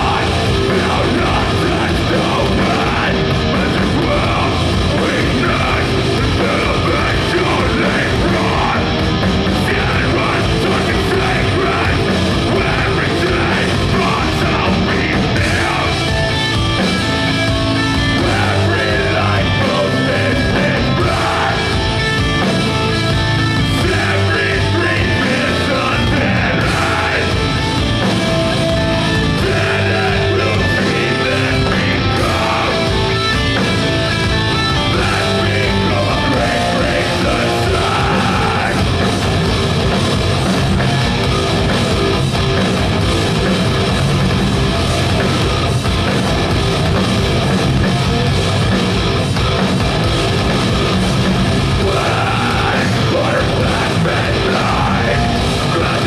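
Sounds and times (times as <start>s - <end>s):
person singing: 0.0s - 16.3s, 18.1s - 22.0s, 23.5s - 27.6s, 29.2s - 33.4s, 34.6s - 39.1s, 51.7s - 56.0s
heavy metal band playing: 0.0s - 56.0s.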